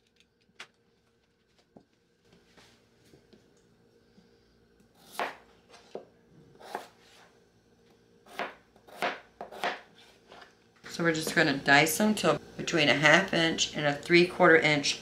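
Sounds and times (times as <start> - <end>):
knife slicing potato on board: 5.0 - 6.0, 6.6 - 7.3, 8.3 - 10.5.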